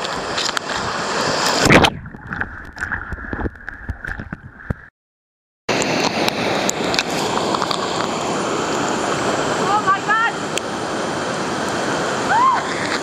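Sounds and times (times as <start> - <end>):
rapids rushing and splashing: 0.0 - 4.2, 5.7 - 13.0
muffled underwater rushing: 0.0 - 4.9.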